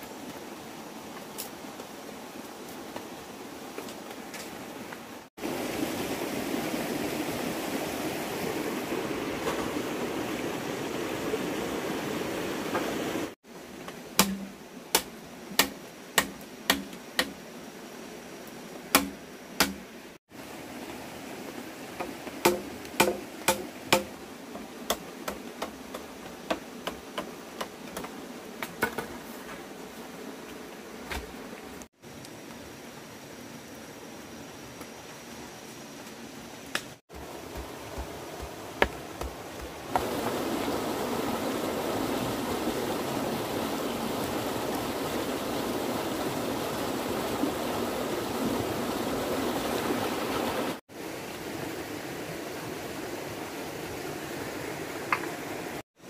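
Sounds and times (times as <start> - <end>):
sharp knocks: 14.2 - 17.4, 19.0 - 19.8, 22.0 - 24.2.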